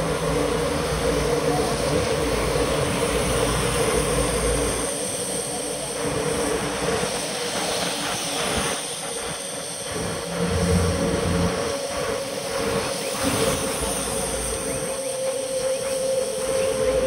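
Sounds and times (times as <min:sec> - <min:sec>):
bicycle tyres hissing on wet road: 0:00.0 - 0:17.0
low hum: 0:09.9 - 0:17.0.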